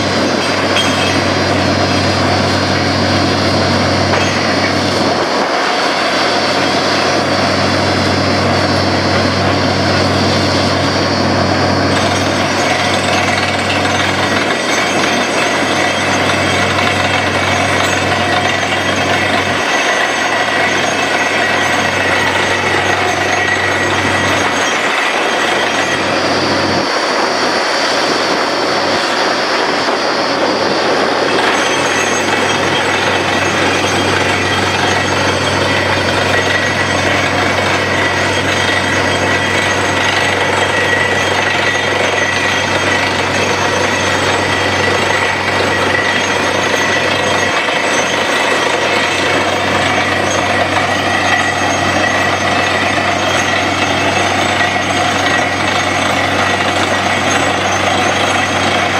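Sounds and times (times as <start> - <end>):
drilling rig mechanical din: 0.0 - 58.9
steady high tone: 0.0 - 58.9.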